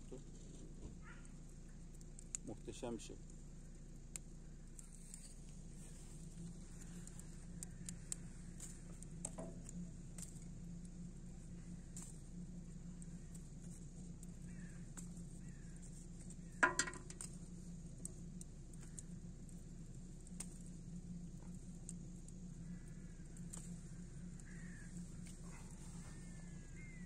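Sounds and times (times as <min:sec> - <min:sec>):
faint bird chirps: 0:14.3 - 0:16.6, 0:22.5 - 0:27.0
thin whistled gliding bird calls: 0:14.3 - 0:16.6, 0:22.5 - 0:27.0.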